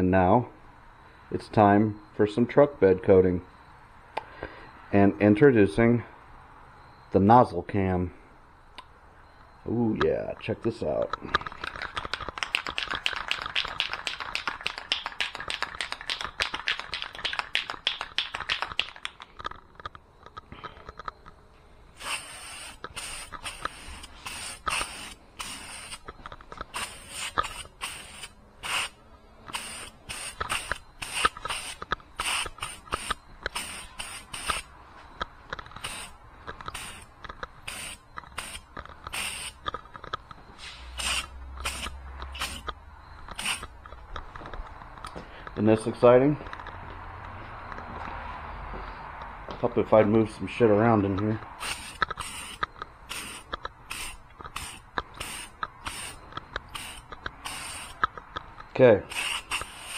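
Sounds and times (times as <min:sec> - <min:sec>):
aerosol can ball rattling: 0:11.4 - 0:19.9, 0:29.5 - 0:34.7, 0:35.6 - 0:40.3, 0:41.0 - 0:43.8, 0:51.6 - 0:58.4, 0:59.1 - 0:59.9
spray can hissing bursts: 0:22.0 - 0:26.0, 0:26.7 - 0:34.7, 0:35.8 - 0:39.6, 0:40.6 - 0:42.7, 0:43.3 - 0:43.6, 0:51.6 - 0:58.0, 0:59.1 - 0:59.9.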